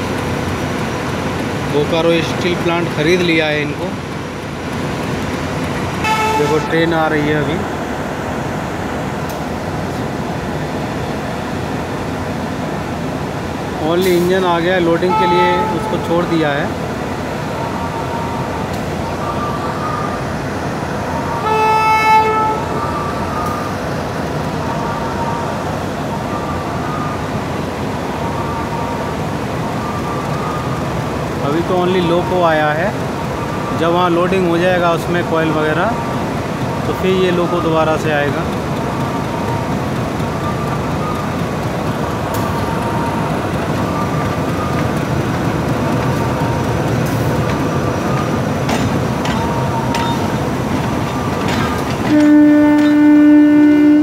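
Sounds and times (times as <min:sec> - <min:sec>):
locomotive engine rumble: 0:00.0 - 0:54.0
locomotive horn blast: 0:06.0 - 0:06.9, 0:14.9 - 0:16.3, 0:21.4 - 0:22.8, 0:52.0 - 0:54.0
steady background noise: 0:22.5 - 0:53.1.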